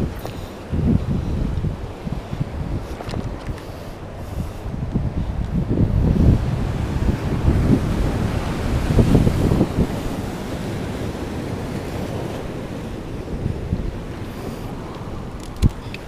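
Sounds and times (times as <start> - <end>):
surf on rocky shore: 0.0 - 16.0
wind buffeting microphone: 0.0 - 16.0.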